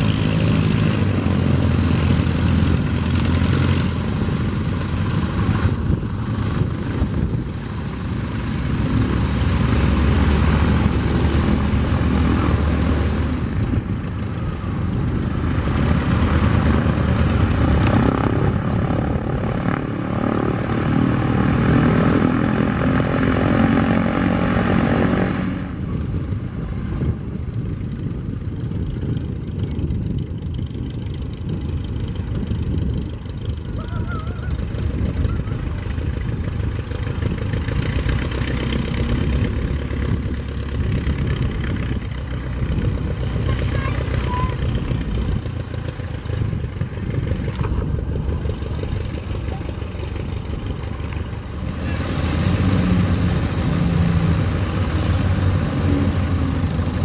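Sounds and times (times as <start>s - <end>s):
propeller plane engines running: 0.0s - 57.0s.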